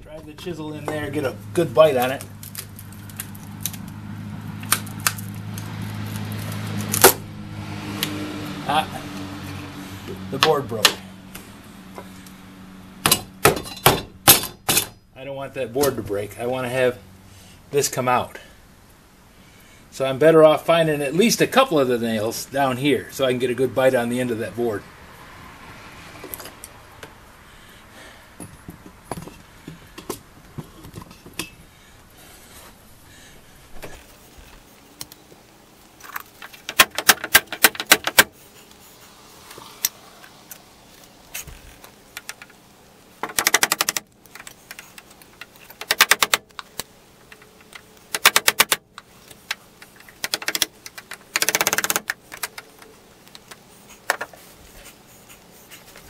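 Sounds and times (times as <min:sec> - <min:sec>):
rapid sharp tapping: 0:43.2 - 0:46.7, 0:47.3 - 0:54.3.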